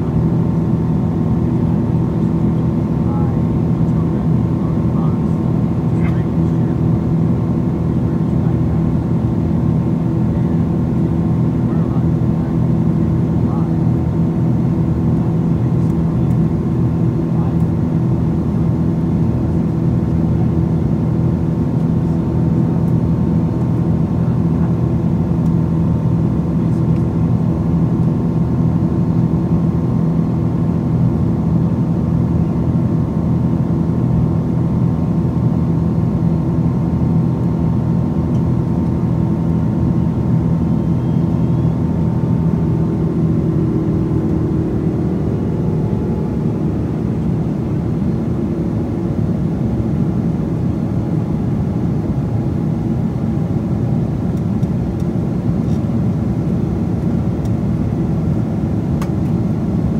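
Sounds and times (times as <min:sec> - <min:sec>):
high engine whine: 0:00.0 - 0:59.9
jet engine drone in cabin: 0:00.0 - 0:59.9.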